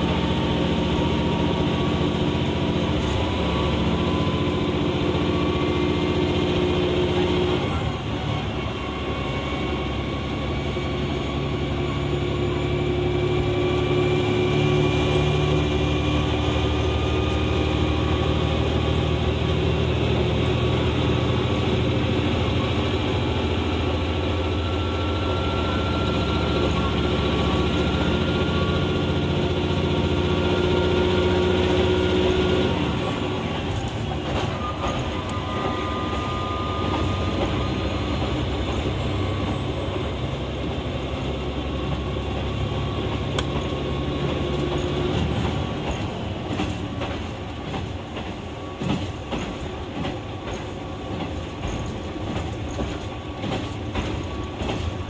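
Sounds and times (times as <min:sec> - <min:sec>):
diesel engine droning: 0:00.0 - 0:55.0
wheel and track noise: 0:00.0 - 0:55.0
clicks over rail joints: 0:43.3 - 0:55.0.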